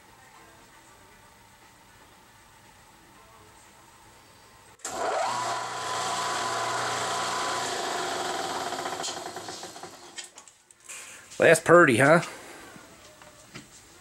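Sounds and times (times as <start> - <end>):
drill spindle motor whine: 4.8 - 10.2.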